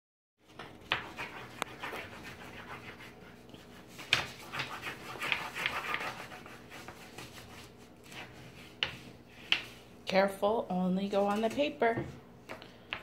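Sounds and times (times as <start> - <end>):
crayon scribbling on paper: 0.9 - 8.5.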